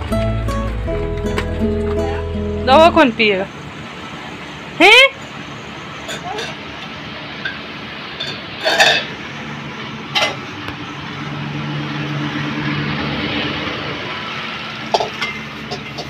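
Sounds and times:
household background noise: 0:00.0 - 0:16.0
low hum: 0:09.2 - 0:16.0.

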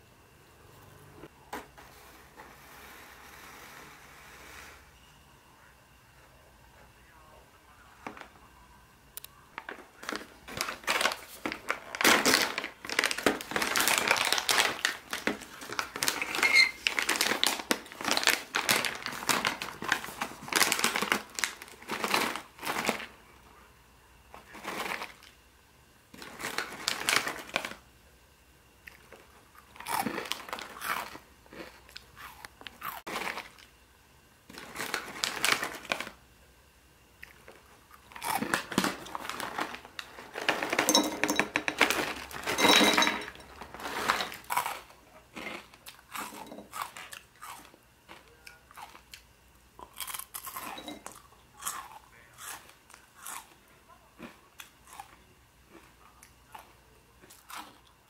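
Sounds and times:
foil bag crinkling: 0:09.5 - 0:23.2, 0:24.4 - 0:25.3, 0:26.2 - 0:27.8, 0:29.9 - 0:31.8, 0:32.6 - 0:33.7, 0:34.5 - 0:36.2, 0:37.5 - 0:47.2
foil snack bag tearing: 0:09.7 - 0:23.1, 0:26.2 - 0:27.8, 0:34.6 - 0:36.2, 0:38.1 - 0:40.8.

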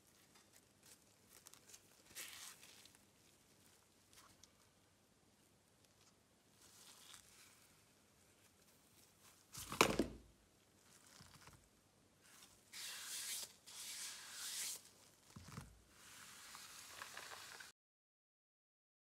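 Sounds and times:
gloved hands rustling on mat: 0:00.0 - 0:04.8, 0:05.9 - 0:11.6.

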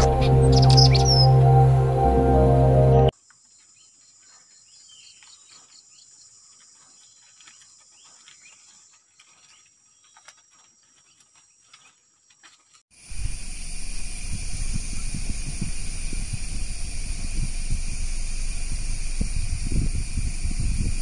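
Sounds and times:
bird chirps and calls: 0:00.0 - 0:01.3
high-pitched insect drone: 0:00.0 - 0:03.1, 0:13.0 - 0:21.0.

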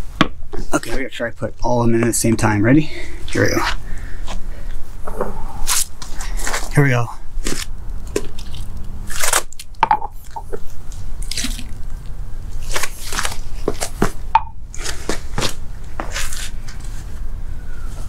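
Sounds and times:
feet scuffing on paving stones: 0:14.8 - 0:16.9.

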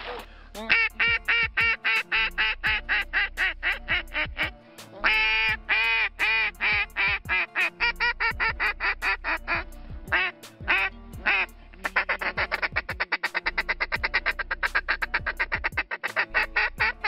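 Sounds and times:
duck call quacks: 0:00.0 - 0:17.0
duck call fast chatter: 0:00.6 - 0:09.5, 0:10.1 - 0:17.0.

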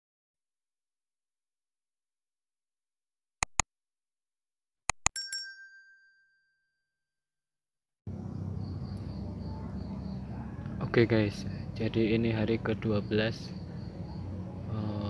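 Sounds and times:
mouse double click: 0:03.4 - 0:03.6
notification bell ding: 0:05.0 - 0:06.7.

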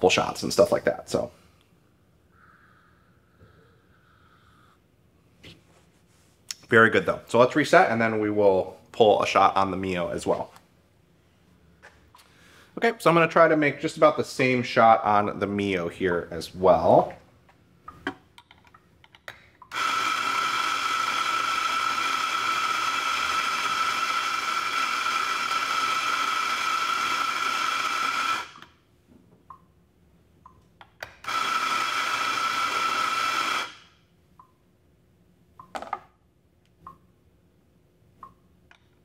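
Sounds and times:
coffee grinder motor whine: 0:19.7 - 0:28.8, 0:31.2 - 0:33.8.

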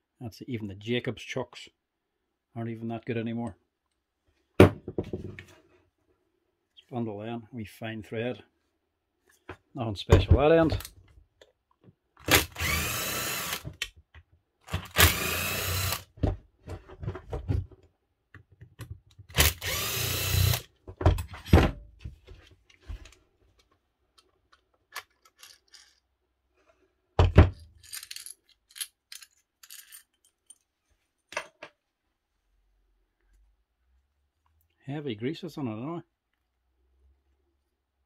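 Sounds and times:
power drill whining: 0:12.2 - 0:13.7, 0:14.8 - 0:16.1, 0:19.3 - 0:20.7
loose screws clinking: 0:24.5 - 0:26.1, 0:27.6 - 0:30.7.

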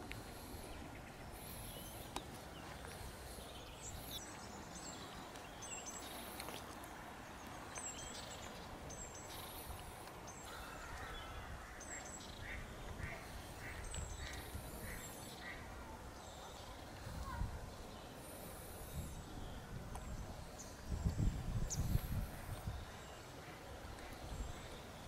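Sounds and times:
low outdoor background noise: 0:00.0 - 0:25.0
small birds chirping and singing: 0:00.0 - 0:25.0
lower bird calls: 0:07.4 - 0:25.0.

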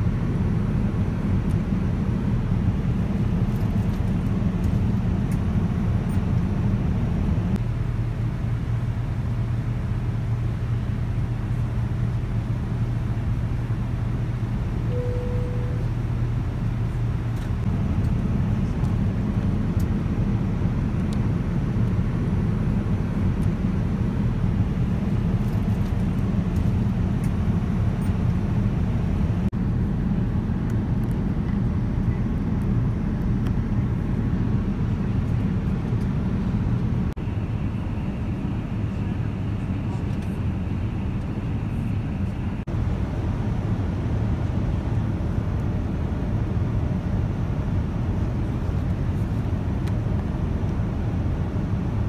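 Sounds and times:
engine and airflow rumble: 0:00.0 - 0:52.0
faint tone: 0:14.9 - 0:16.1.

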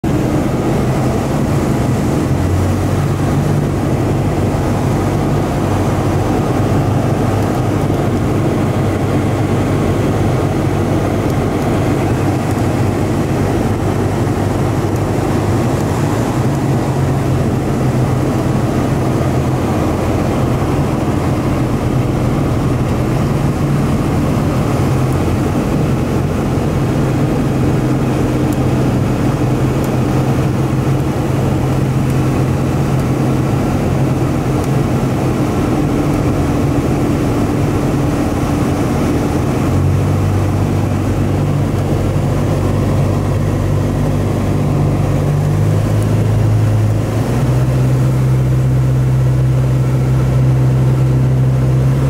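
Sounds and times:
light plane engine and propeller: 0:00.0 - 0:52.0.

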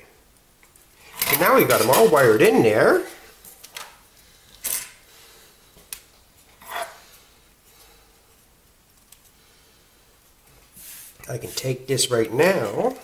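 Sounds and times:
soft rustles: 0:05.2 - 0:11.8.

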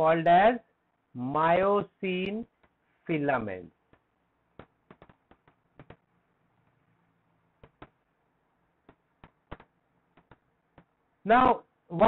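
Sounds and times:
stylus tapping on tablet: 0:03.8 - 0:06.1, 0:07.5 - 0:08.1, 0:08.8 - 0:11.0.

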